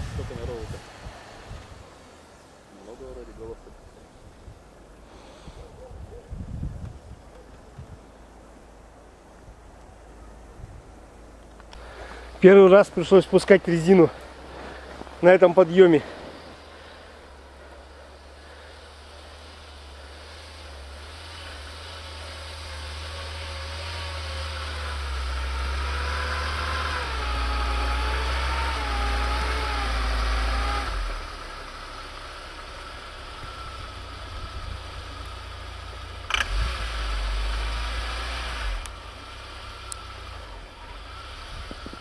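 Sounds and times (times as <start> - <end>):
engine working under load: 0.0 - 5.7, 11.1 - 42.0.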